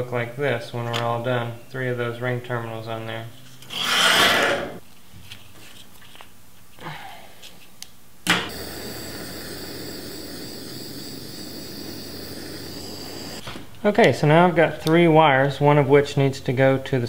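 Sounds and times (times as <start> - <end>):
torch igniter click: 8.2 - 13.4
torch flame hissing: 8.4 - 13.4.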